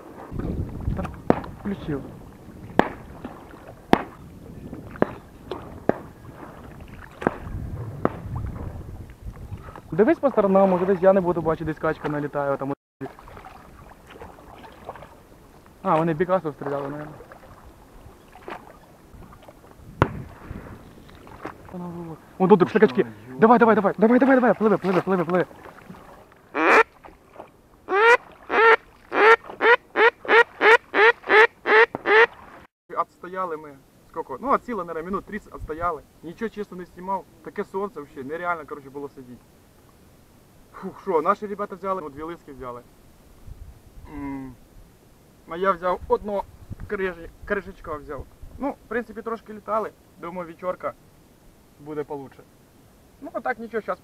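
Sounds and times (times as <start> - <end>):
water rumble: 0.0 - 32.7
duck quacking: 26.6 - 26.9, 27.9 - 32.4.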